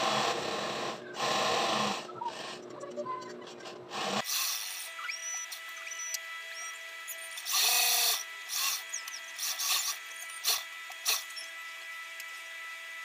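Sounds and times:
sewing machine motor hum: 0.0s - 2.6s, 3.9s - 13.0s.

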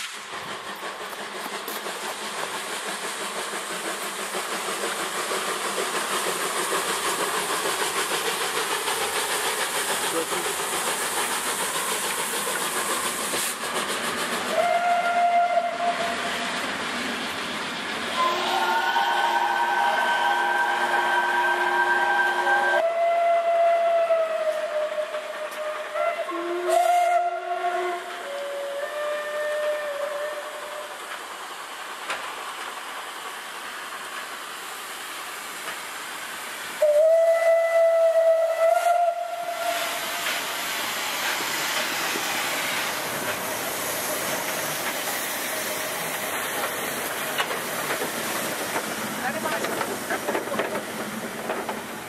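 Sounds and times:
steam hissing from locomotive: 0.0s - 52.0s
steam locomotive whistle: 14.5s - 16.5s, 18.1s - 31.1s, 36.8s - 40.6s.

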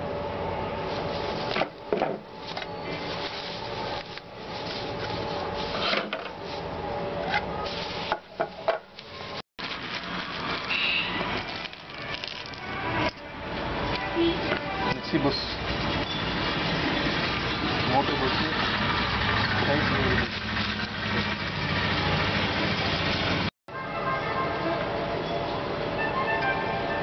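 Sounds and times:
steady background hum: 0.0s - 16.0s
plastic bags crinkling: 0.9s - 6.7s, 7.6s - 13.1s.

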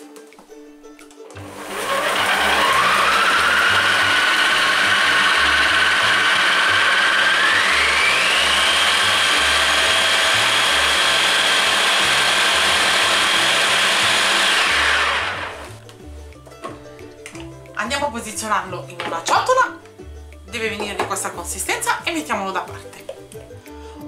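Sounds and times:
food processor motor whine: 1.4s - 15.8s.

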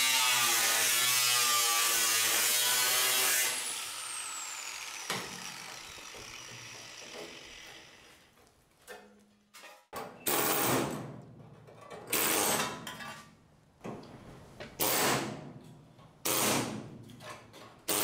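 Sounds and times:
power tool on sheet metal: 0.0s - 8.3s.

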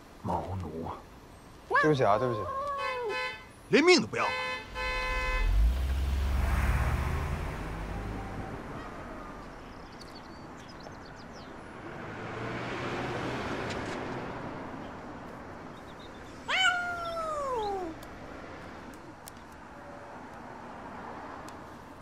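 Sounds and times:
cat meowing: 16.5s - 18.0s.

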